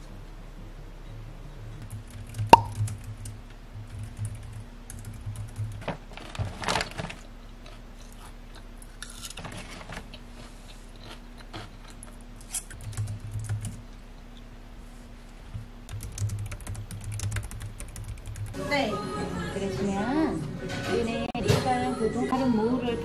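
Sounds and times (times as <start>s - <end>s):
typing on computer keyboard: 1.9s - 5.9s, 12.7s - 13.8s, 15.9s - 18.6s
plastic chip bag crinkling: 5.7s - 12.7s
chewing crunchy chips: 6.8s - 14.5s.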